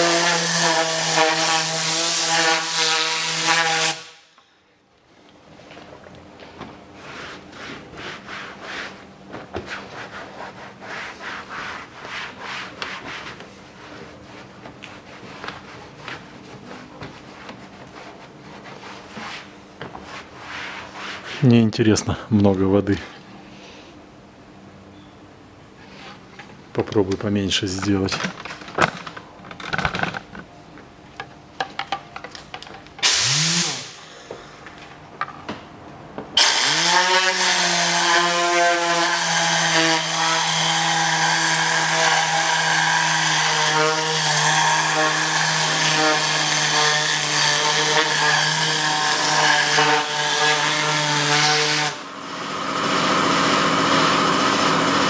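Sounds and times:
towel rubbing plastic: 7.0s - 21.7s.

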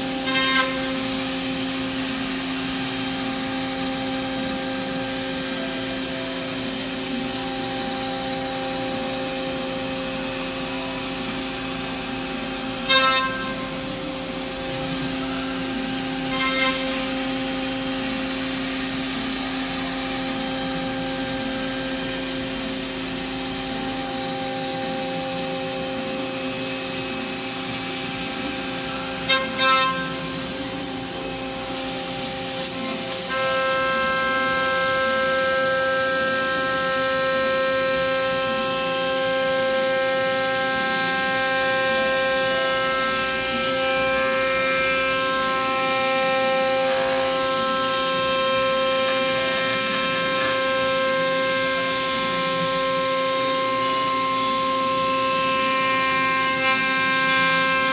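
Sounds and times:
cutter squealing in metal: 0.0s - 1.5s, 12.8s - 17.6s, 28.3s - 34.5s
router spindle whining: 0.0s - 57.9s.

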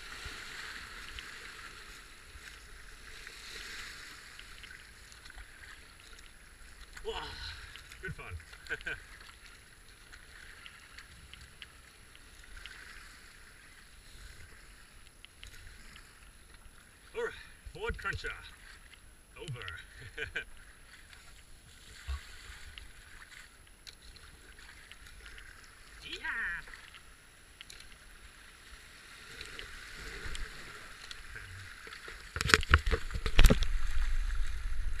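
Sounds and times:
paddle splashes and drips: 0.0s - 35.0s
whitewater rushing: 26.0s - 26.8s.

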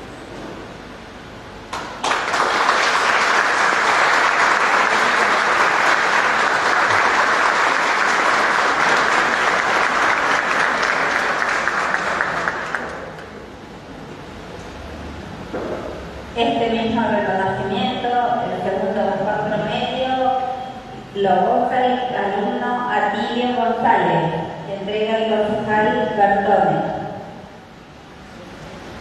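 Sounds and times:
audience applauding: 1.7s - 13.4s.

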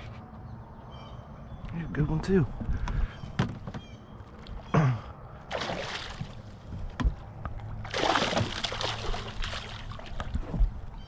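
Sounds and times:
fish splashing in water: 5.5s - 6.6s, 7.8s - 10.8s.

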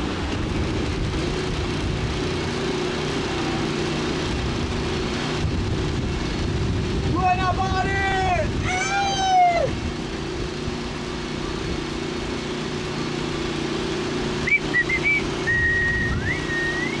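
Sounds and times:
low engine hum: 0.0s - 17.0s
person whistling: 14.4s - 17.0s.

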